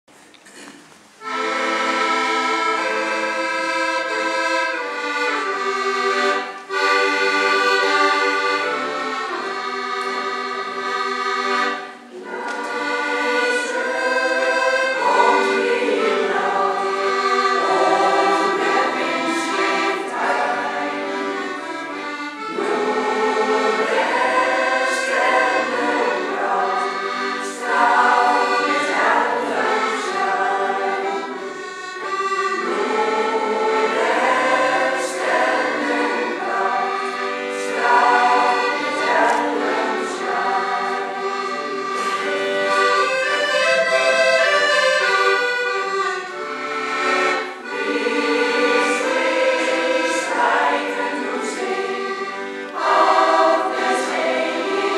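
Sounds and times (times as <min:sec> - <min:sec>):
accordion playing chords: 0:01.2 - 0:54.9
women's choir singing: 0:01.2 - 0:54.9.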